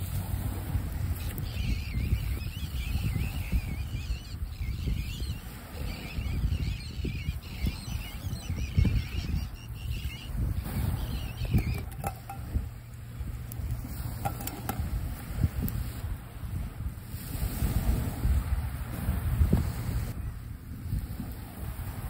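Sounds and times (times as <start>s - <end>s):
wind buffeting microphone: 0.0s - 22.0s
bird warbling song: 1.1s - 12.6s.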